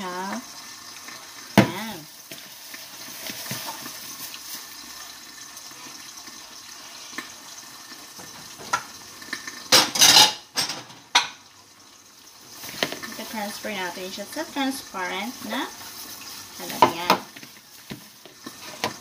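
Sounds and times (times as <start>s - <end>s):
dishes clattering in rack: 9.7s - 11.4s.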